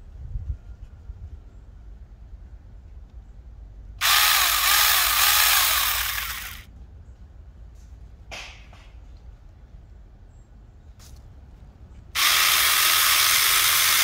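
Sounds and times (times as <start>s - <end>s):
electric chainsaw whining: 4.0s - 6.7s, 12.2s - 14.0s.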